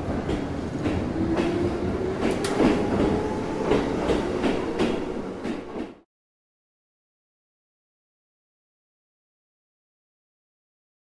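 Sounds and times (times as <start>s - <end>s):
wheels clicking over rail joints: 0.2s - 5.9s.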